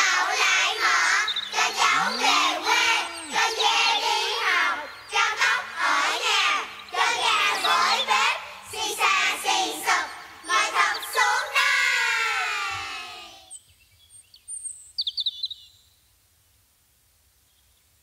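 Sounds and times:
faint high chirps: 0:00.0 - 0:11.6.

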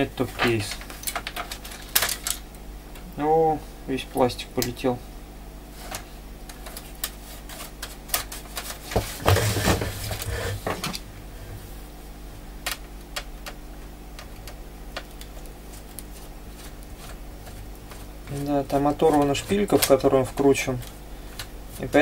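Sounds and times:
clatter and scraping: 0:08.2 - 0:11.0.

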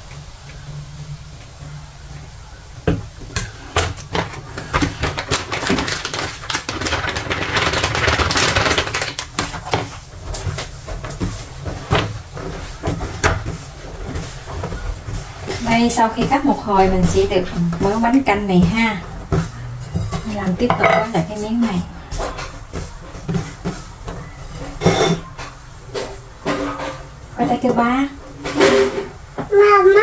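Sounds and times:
low steady hum: 0:00.0 - 0:04.9
plastic packet crackling: 0:04.0 - 0:11.6.

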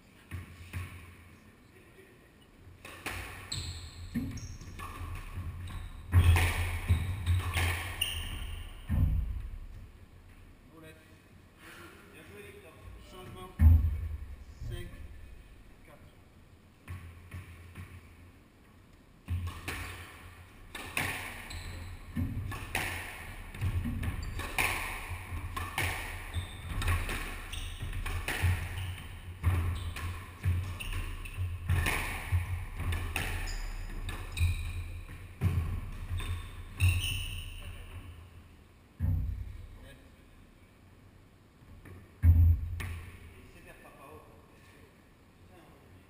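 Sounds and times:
squash ball smacking: 0:02.8 - 0:09.8, 0:19.2 - 0:37.0.

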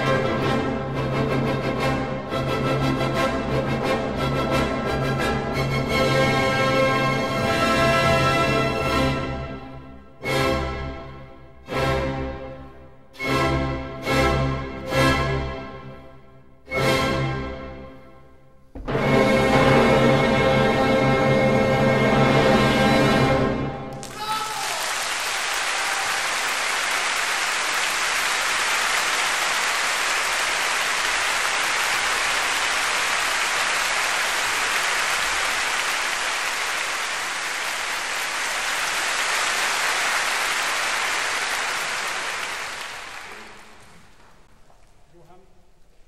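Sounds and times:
audience applauding: 0:23.9 - 0:44.5.

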